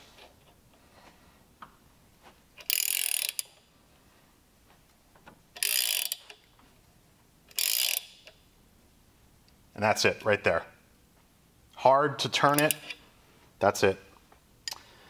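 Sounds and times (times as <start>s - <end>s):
ratcheting wrench clicking: 2.6s - 3.6s, 5.6s - 6.5s, 7.5s - 8.4s, 12.5s - 13.0s.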